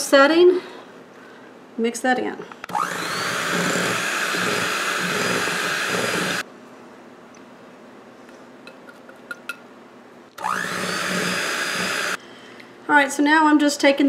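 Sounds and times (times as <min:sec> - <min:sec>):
electric mixer running: 0:02.7 - 0:06.4, 0:10.4 - 0:12.2.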